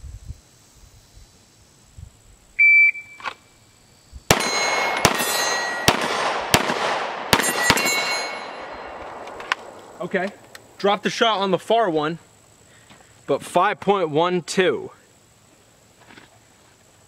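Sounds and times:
metallic pings of steel targets: 4.3s - 6.0s, 7.4s - 9.0s
pistol shots: 4.3s - 10.0s.

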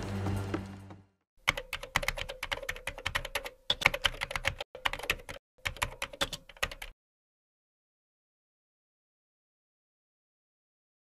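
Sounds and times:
keyboard typing clicks: 1.5s - 7.0s.

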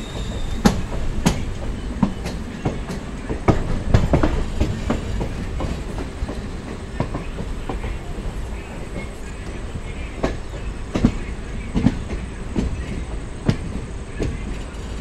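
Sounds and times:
low train running noise: 0.0s - 15.0s
train wheels clacking over joints: 0.0s - 15.0s.

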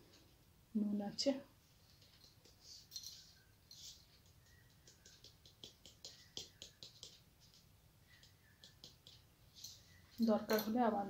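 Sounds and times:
salt shaker shaking: 2.0s - 7.6s.

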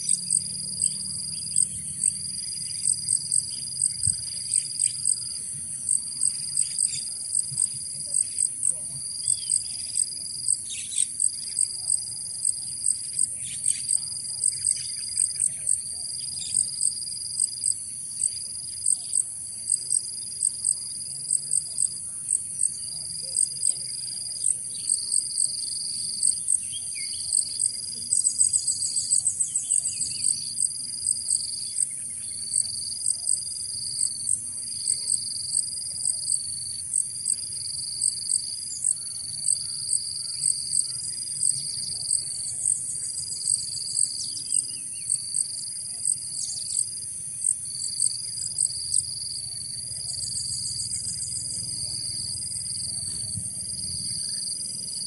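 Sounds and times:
insects trilling and chirping: 0.0s - 55.0s
faint bird chirps: 38.1s - 46.9s.

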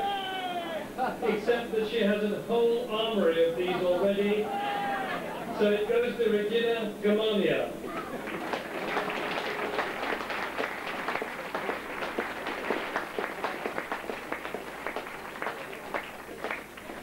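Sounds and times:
crowd applauding: 7.8s - 17.0s.

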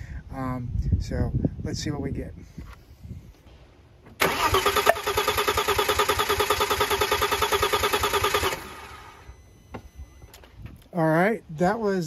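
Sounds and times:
engine cranking without firing: 4.1s - 9.4s.

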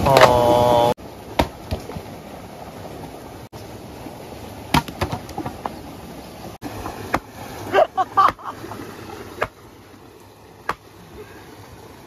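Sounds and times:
vocal exclamation: 0.0s - 1.0s.

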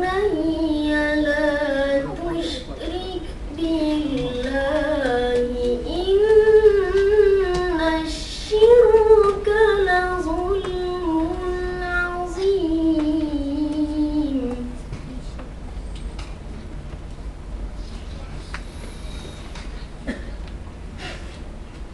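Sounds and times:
boy chanting melodically: 0.0s - 15.2s.

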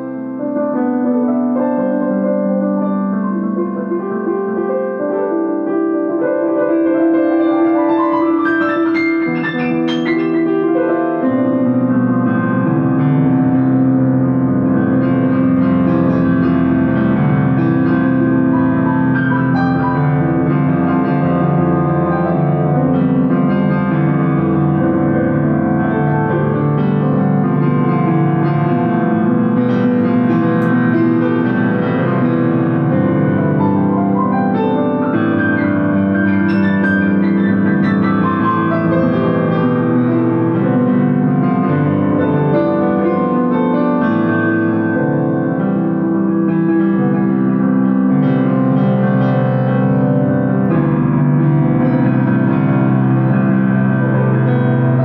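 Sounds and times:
piano music: 0.0s - 55.0s.

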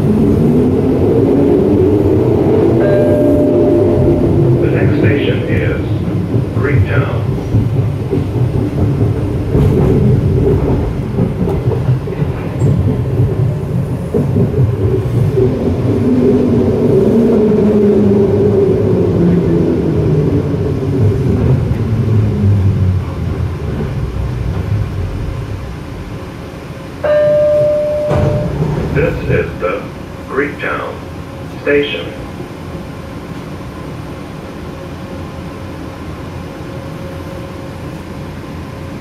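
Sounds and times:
train rumble and whine: 0.0s - 39.0s
electronic tone: 27.1s - 28.6s.

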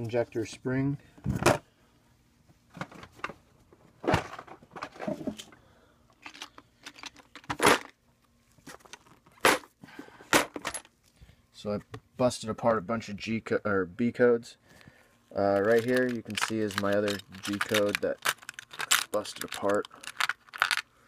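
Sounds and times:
small metal parts clicking and rattling: 6.2s - 7.9s, 15.5s - 20.9s
plastic organizer being handled: 15.5s - 20.8s.

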